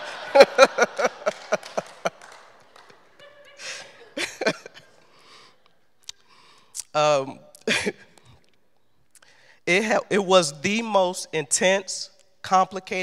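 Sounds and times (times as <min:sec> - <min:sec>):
woman laughing: 0:00.0 - 0:02.4, 0:03.0 - 0:05.0
faint breaths: 0:05.0 - 0:06.8, 0:09.2 - 0:09.7.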